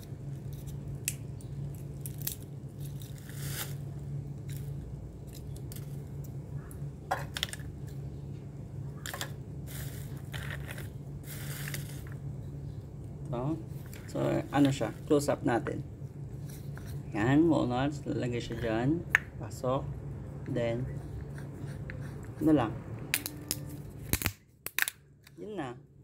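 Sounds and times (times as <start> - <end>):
steady low hum: 0.0 - 26.0
walnut shells cracking: 0.4 - 3.8, 4.4 - 6.4, 23.1 - 25.4.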